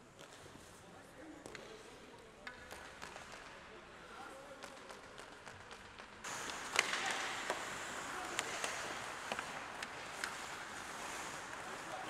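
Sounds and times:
hockey sticks and puck clacking: 0.1s - 12.0s
skates hissing on ice: 6.2s - 12.0s.

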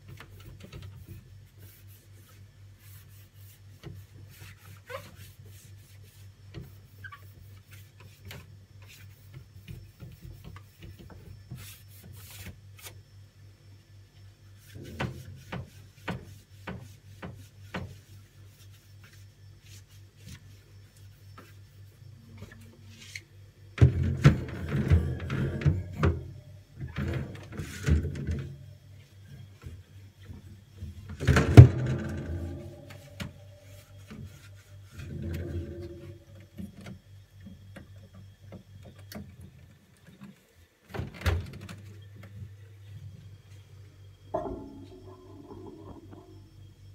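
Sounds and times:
sponge scrubbing: 1.0s - 9.4s
steady low hum: 5.4s - 40.3s, 41.8s - 46.9s
knocks against plastic and shelves: 31.2s - 33.3s.

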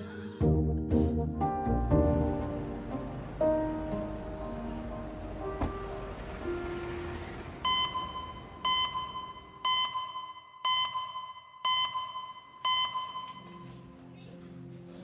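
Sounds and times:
short electronic beeps: 7.7s - 13.7s.

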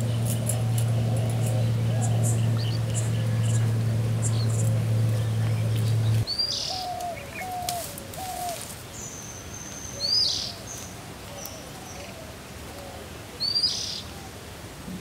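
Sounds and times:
steady low hum: 0.0s - 8.3s
birds calling: 0.0s - 14.3s.

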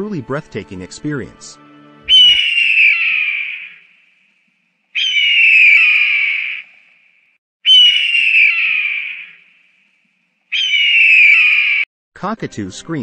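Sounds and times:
bird of prey screaming: 2.1s - 4.0s, 5.0s - 6.9s, 7.6s - 9.6s, 10.5s - 11.9s.

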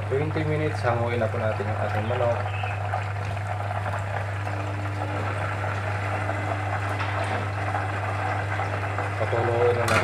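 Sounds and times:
chicken frying in oil: 0.0s - 10.0s
low hum: 3.6s - 9.4s.

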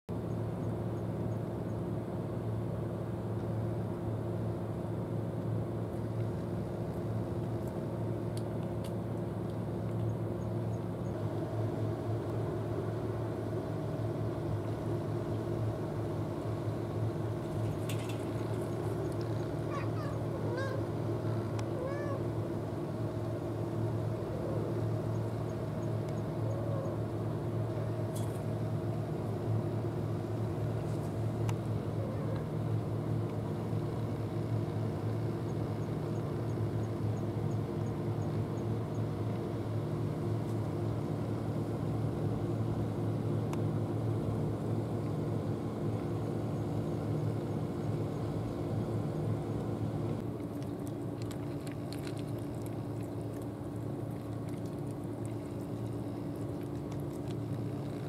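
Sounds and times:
low mechanical hum: 0.1s - 58.0s
cat meowing: 21.8s - 22.2s.

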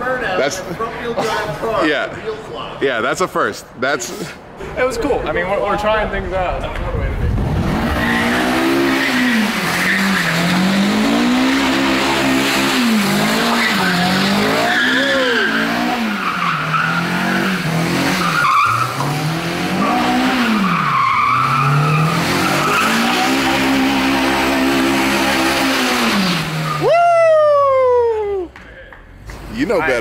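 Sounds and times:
car engine revving: 6.6s - 26.9s
tyres squealing on asphalt: 7.8s - 28.0s.

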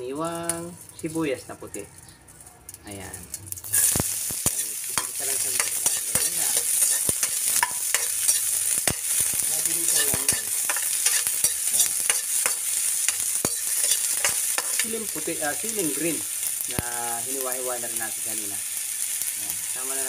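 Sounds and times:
onion sizzling in hot oil: 0.0s - 20.0s
spatula scraping a wok: 3.7s - 15.2s.

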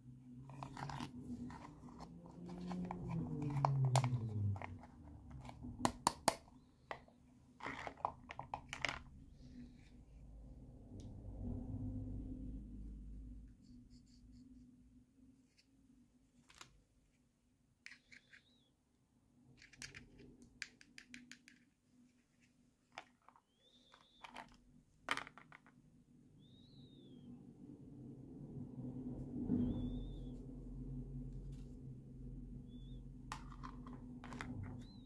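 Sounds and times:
plastic rubbing squeaks: 0.5s - 5.8s, 23.5s - 24.6s, 32.7s - 35.0s
plastic toy pieces clicking: 17.9s - 18.6s, 19.5s - 21.7s.

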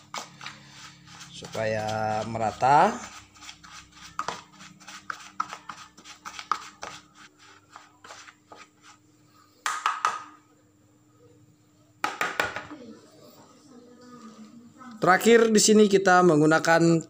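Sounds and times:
spoon scraping plastic bowl: 0.0s - 9.0s.

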